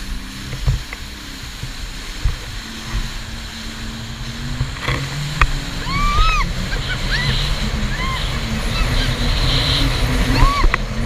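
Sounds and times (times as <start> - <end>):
jet ski engine running: 0.0 - 11.0
rushing spray: 0.0 - 11.0
wind buffeting microphone: 0.0 - 11.0
hull thumping on water: 0.3 - 7.9.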